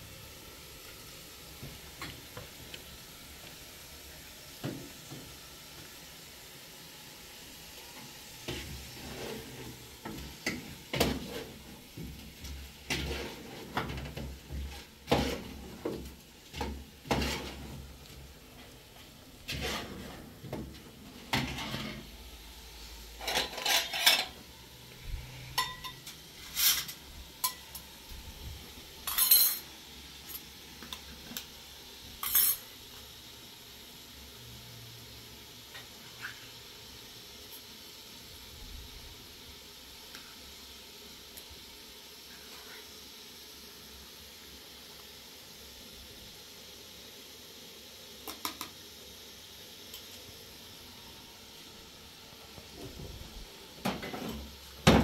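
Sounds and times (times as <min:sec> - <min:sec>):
pots and dishes clinking: 0:08.5 - 0:17.8, 0:19.5 - 0:22.1, 0:23.2 - 0:24.5, 0:25.5 - 0:27.9, 0:29.0 - 0:31.0, 0:32.2 - 0:32.7, 0:53.8 - 0:55.0.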